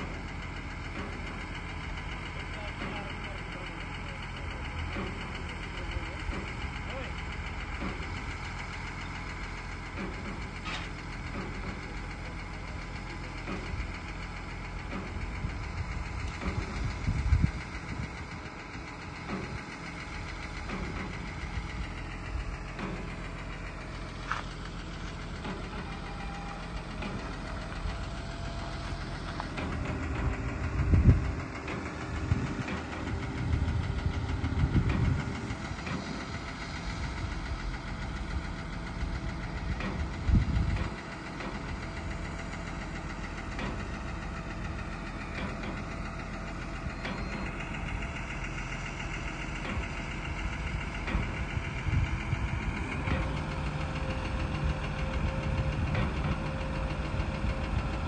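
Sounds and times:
crane diesel engine running: 0.0s - 58.0s.

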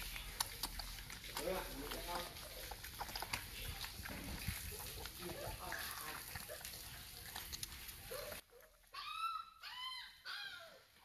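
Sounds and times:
puppies suckling: 0.0s - 9.0s
puppies whining: 8.0s - 11.0s.

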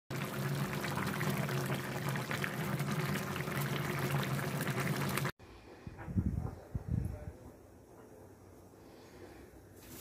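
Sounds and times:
curry bubbling in a pan: 0.1s - 5.4s.

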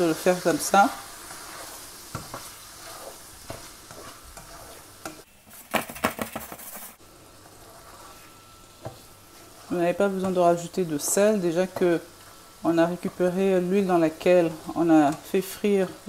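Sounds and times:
food sizzling in a frying pan: 0.0s - 5.6s, 6.9s - 16.0s
spatula scraping and tapping pan: 1.0s - 13.5s.

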